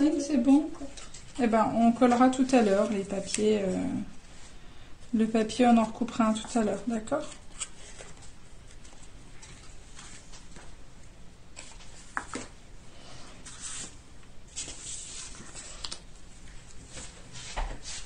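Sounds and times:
paper rustling: 0:00.8 - 0:04.0, 0:05.8 - 0:10.8, 0:13.4 - 0:18.0.

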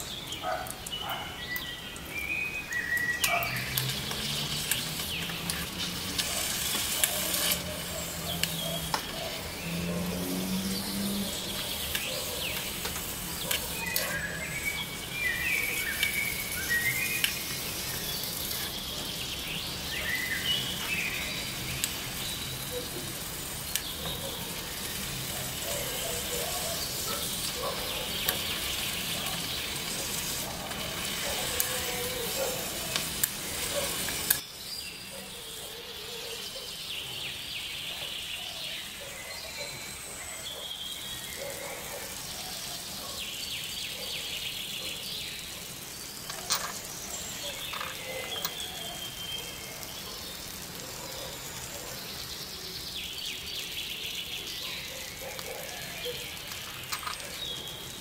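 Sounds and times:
faint birds chirping: 0:00.0 - 0:58.0
egg sizzling in a wok: 0:02.0 - 0:34.6, 0:42.0 - 0:54.5, 0:55.1 - 0:58.0
utensil scraping a pan: 0:03.8 - 0:08.1.

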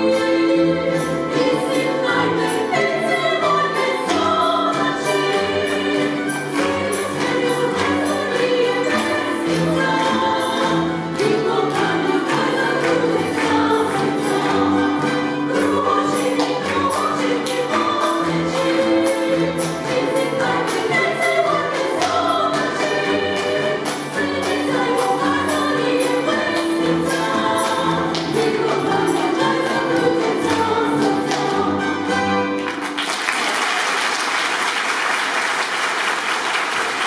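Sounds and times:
voices singing: 0:00.0 - 0:32.2
audience applause: 0:32.5 - 0:37.0.

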